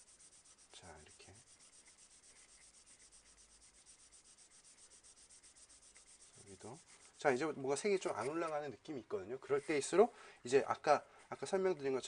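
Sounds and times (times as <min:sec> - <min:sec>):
colored pencil rubbing on paper: 0:00.0 - 0:08.8, 0:09.4 - 0:10.1.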